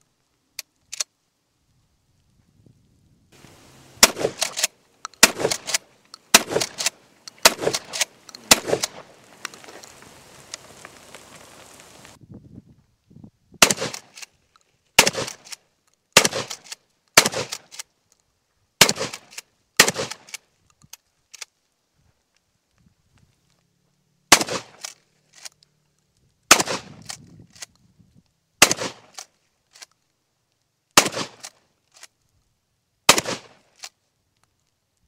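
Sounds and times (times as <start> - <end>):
shotgun shots: 4.0 - 9.1, 13.6 - 14.2, 15.0 - 15.6, 16.2 - 17.8, 18.8 - 20.4, 24.3 - 24.9, 26.5 - 27.2, 28.6 - 29.2, 31.0 - 31.6, 33.1 - 33.6.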